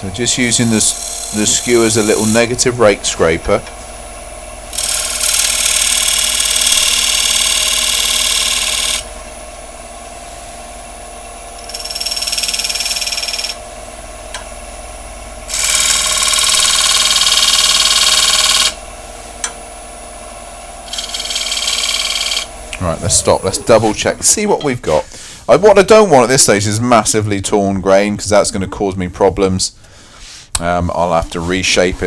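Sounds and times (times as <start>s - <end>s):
wood lathe humming and whining: 0.0s - 24.5s
chisel scraping spinning wood: 0.1s - 3.7s, 4.7s - 9.0s, 15.5s - 18.8s, 20.9s - 25.1s.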